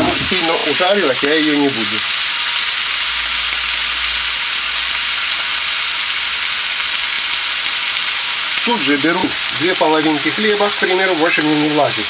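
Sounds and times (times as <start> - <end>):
steaks sizzling on griddle: 0.0 - 12.0.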